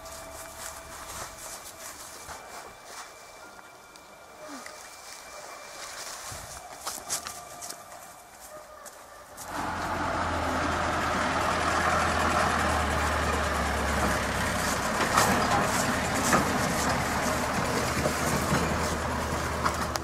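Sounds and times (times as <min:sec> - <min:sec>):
car engine humming: 0:00.0 - 0:02.8, 0:09.4 - 0:20.0.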